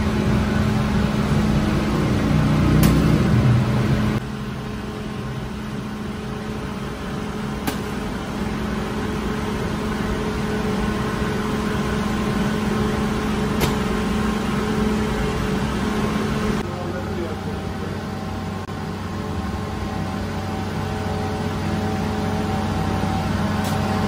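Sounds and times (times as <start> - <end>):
bakery machinery humming: 0.0 - 24.0
sharp click: 2.8 - 3.2, 13.6 - 13.8.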